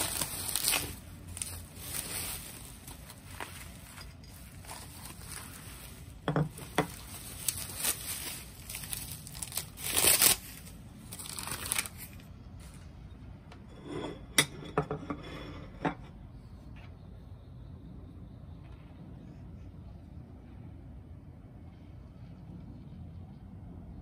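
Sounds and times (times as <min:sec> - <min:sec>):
bubble wrap crinkling: 0:00.0 - 0:12.9.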